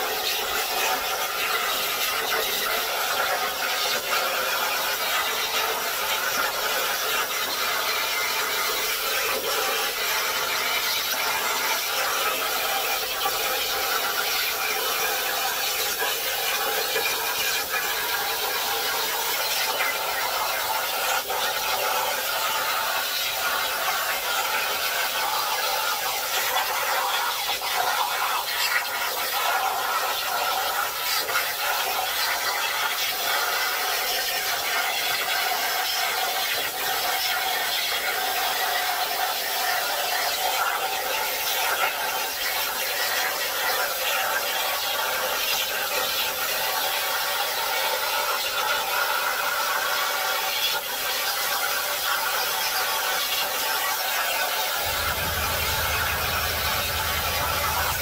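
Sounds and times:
plasma cutter hissing and crackling: 0:00.2 - 0:01.6, 0:02.2 - 0:12.5, 0:14.6 - 0:25.8, 0:34.7 - 0:47.0.

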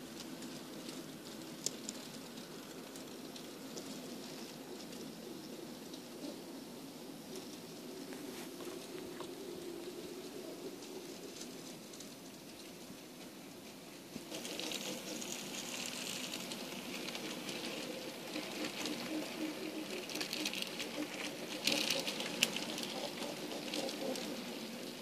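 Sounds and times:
model train wheels clicking: 0:10.8 - 0:25.0.

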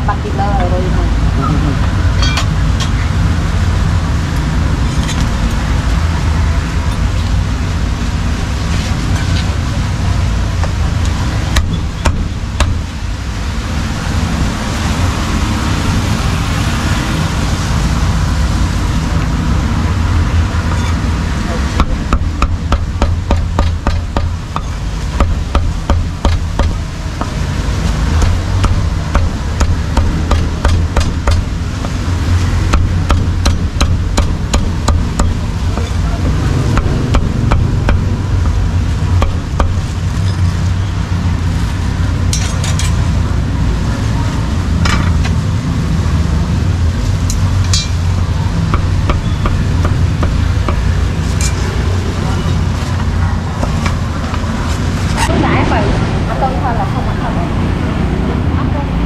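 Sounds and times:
road traffic noise: 0:00.0 - 0:59.0
cleaver chopping on wooden block: 0:21.8 - 0:27.4, 0:28.1 - 0:32.0, 0:32.7 - 0:38.1, 0:48.7 - 0:50.9.

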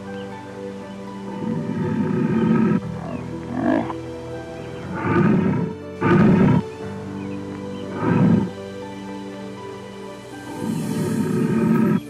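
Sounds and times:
background music: 0:00.0 - 0:12.0
lion growling: 0:01.3 - 0:04.0, 0:04.7 - 0:06.8, 0:07.7 - 0:08.5.

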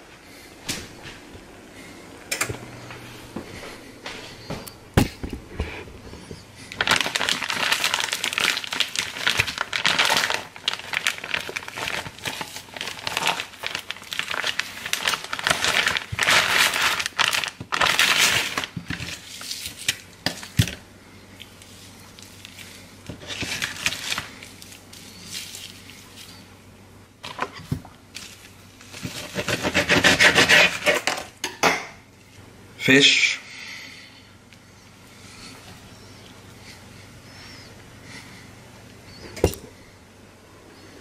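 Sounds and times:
plastic bag crinkling: 0:06.2 - 0:26.5.

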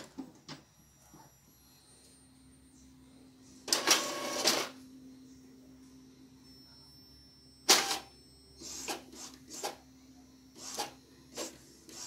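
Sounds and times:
printer humming: 0:00.0 - 0:12.0
print head carriage whirring: 0:03.5 - 0:05.1, 0:07.6 - 0:12.0.

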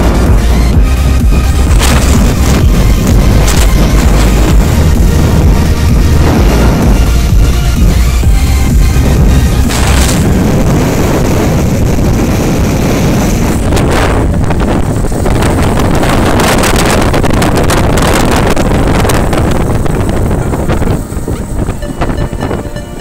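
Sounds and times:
motorcycle engine and road noise: 0:00.0 - 0:23.0
wind buffeting microphone: 0:00.0 - 0:23.0.

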